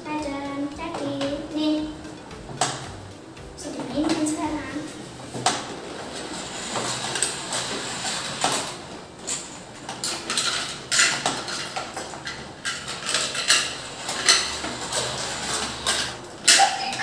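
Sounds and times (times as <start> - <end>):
plastic toy clicks and rattles: 5.4 - 17.0.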